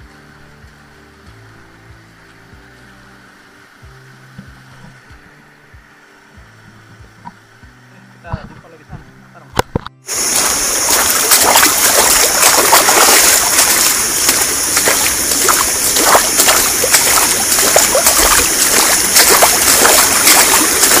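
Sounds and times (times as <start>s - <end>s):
waterfall rushing and splashing: 10.1s - 21.0s.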